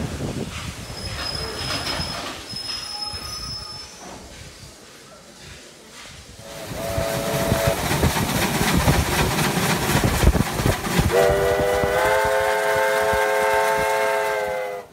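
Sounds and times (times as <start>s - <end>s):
steam locomotive running: 0.0s - 14.9s
steam whistle: 6.4s - 7.8s, 11.1s - 14.9s.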